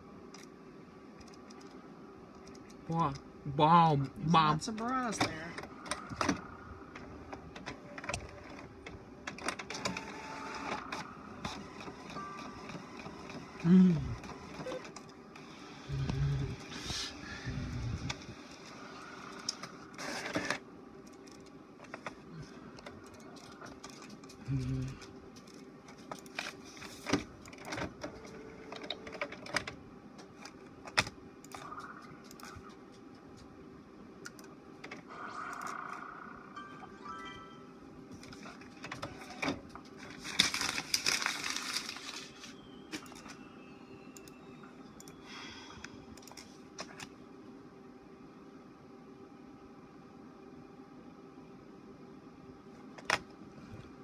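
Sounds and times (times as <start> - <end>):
printer hum: 0.0 - 54.0
printer motor whine: 5.2 - 16.8, 18.0 - 20.6, 27.6 - 29.6
paper rustling and scraping: 40.0 - 42.6.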